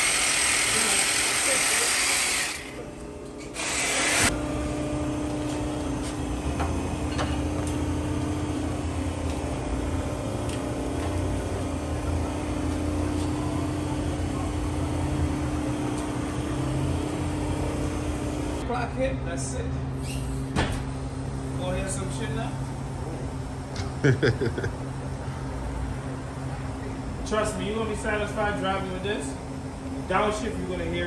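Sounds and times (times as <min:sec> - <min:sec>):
reciprocating saw cutting metal pipe: 0:00.0 - 0:02.8, 0:03.5 - 0:04.3
steady low hum: 0:02.5 - 0:31.0.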